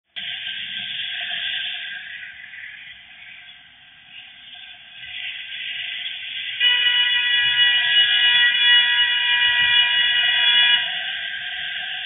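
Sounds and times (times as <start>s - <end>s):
car horn long blast: 6.6s - 12.0s.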